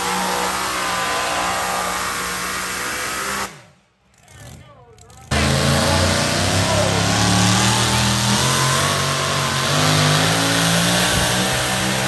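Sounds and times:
supercharged truck engine revving: 0:00.0 - 0:03.8, 0:04.4 - 0:12.0.

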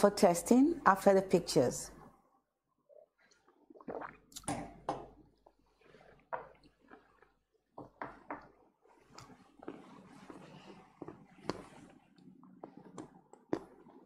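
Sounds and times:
wet sipping sounds: 0:02.9 - 0:07.5, 0:08.9 - 0:14.0.

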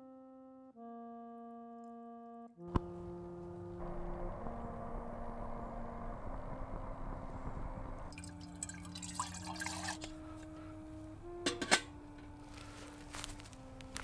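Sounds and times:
soft keyboard music: 0:00.0 - 0:14.0
water pouring into kettle: 0:08.1 - 0:10.1
metal kettle clinks: 0:11.5 - 0:11.9.

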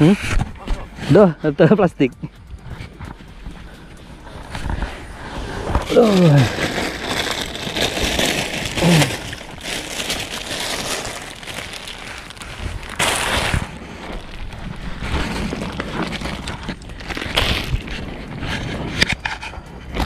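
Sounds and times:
plastic bag crinkling: 0:04.4 - 0:18.4.

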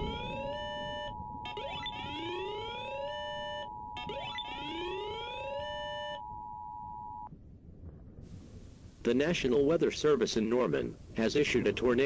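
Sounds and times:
two-note electronic alarm tone: 0:00.0 - 0:07.3.

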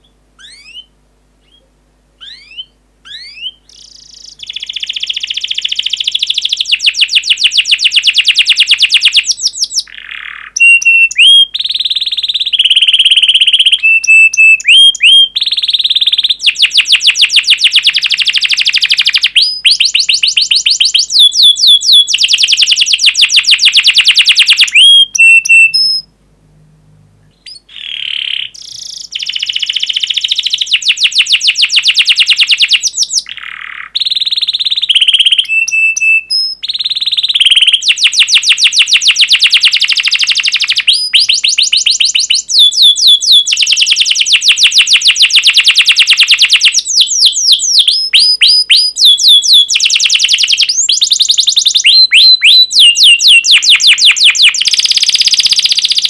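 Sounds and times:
sharp falling chirps: 0:00.0 - 0:01.6, 0:02.2 - 0:06.6, 0:23.5 - 0:26.1
canary singing trills: 0:00.0 - 0:26.1, 0:27.2 - 0:56.0.

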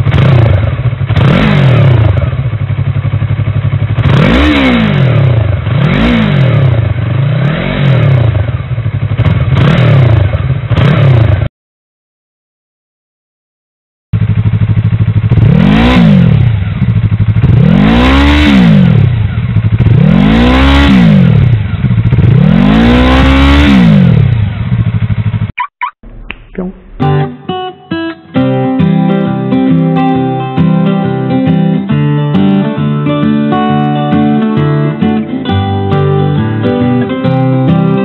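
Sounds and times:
motorcycle engine idling and revving: 0:00.0 - 0:11.5, 0:14.2 - 0:26.3, 0:28.8 - 0:38.0
acoustic guitar music: 0:25.6 - 0:38.0.

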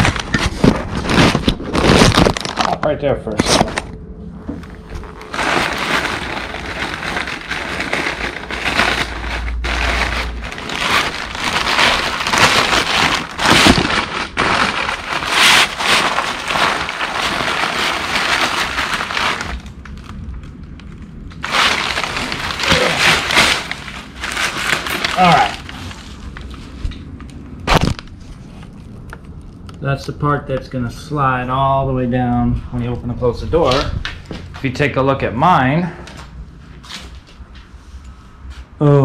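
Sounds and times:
packing paper crinkling: 0:00.0 - 0:03.9, 0:04.8 - 0:29.8.

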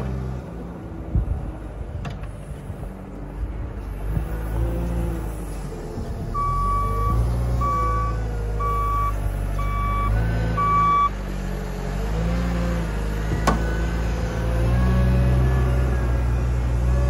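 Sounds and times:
diesel engine running: 0:00.0 - 0:17.0
reversing alarm beeping: 0:06.4 - 0:11.1.

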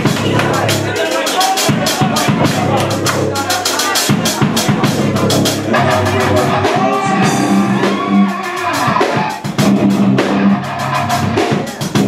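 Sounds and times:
bass guitar: 0:00.0 - 0:01.0, 0:01.7 - 0:12.0
drum kit beat: 0:00.0 - 0:12.0
electric guitars: 0:04.2 - 0:12.0.

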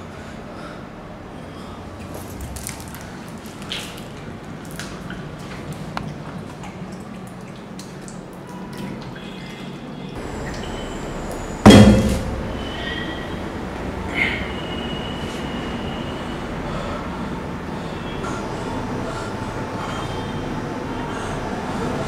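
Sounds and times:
loud thump: 0:11.7 - 0:12.5.

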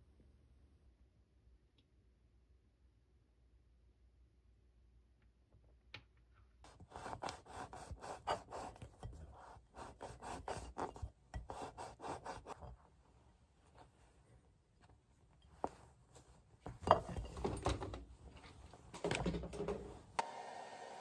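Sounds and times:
bagel crust rasping: 0:06.7 - 0:12.8.

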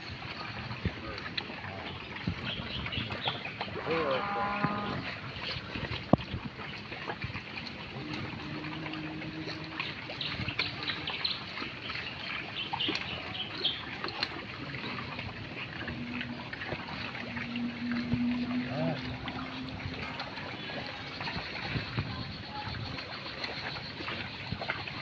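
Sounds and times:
pigs chewing and rustling plants: 0:00.0 - 0:25.0
low steady hum: 0:14.8 - 0:22.1.

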